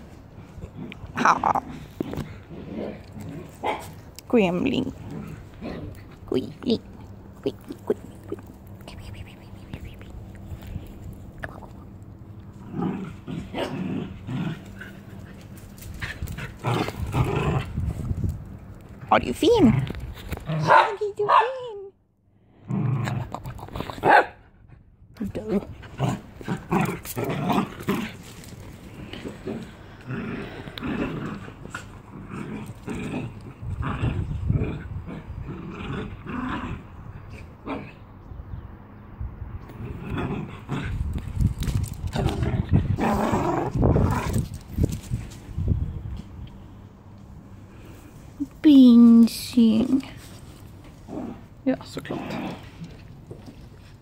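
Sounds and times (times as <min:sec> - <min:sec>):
small dogs growling: 0:00.3 - 0:18.4, 0:22.5 - 0:24.2, 0:25.3 - 0:38.1, 0:39.6 - 0:45.3, 0:49.8 - 0:53.9.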